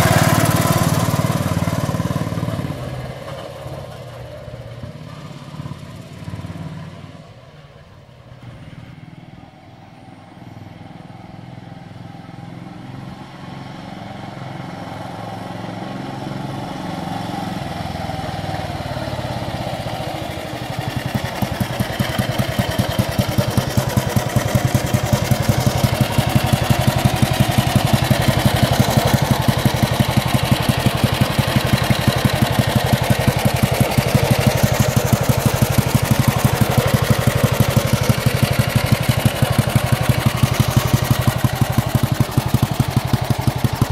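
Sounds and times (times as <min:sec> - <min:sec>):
motorcycle engine idling: 0:00.0 - 0:05.4, 0:17.5 - 0:43.9.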